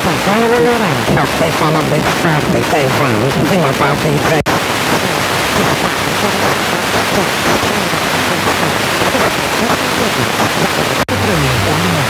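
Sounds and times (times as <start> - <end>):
faint broadcast voice: 0.0 - 12.0
radio static hiss: 0.0 - 12.0.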